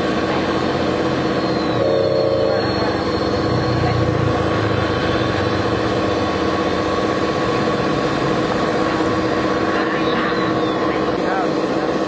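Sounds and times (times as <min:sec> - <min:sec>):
toy bulldozer whine and hum: 0:00.6 - 0:06.6.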